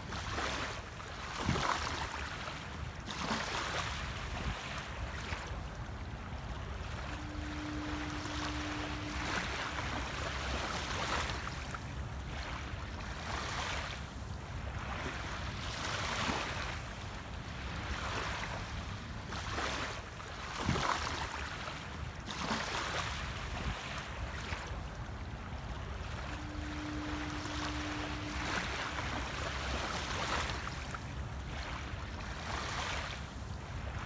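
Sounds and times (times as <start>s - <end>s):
small waves lapping on sand: 0.0s - 34.0s
steady low tone: 4.0s - 19.3s, 23.3s - 34.0s.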